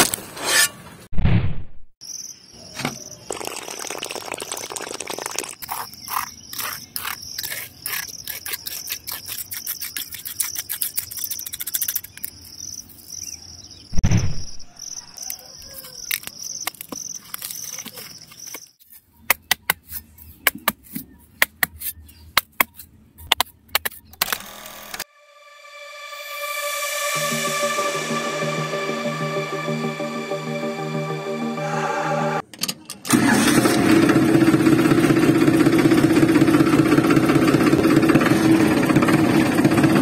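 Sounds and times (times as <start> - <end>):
loud thump: 1.1 - 1.9, 14.0 - 14.7
insects trilling: 2.0 - 13.4.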